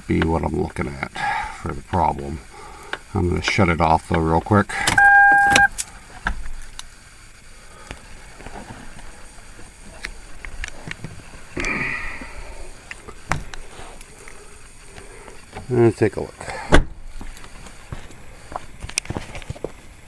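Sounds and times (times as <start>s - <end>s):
electronic dashboard chime: 5.0s - 5.7s.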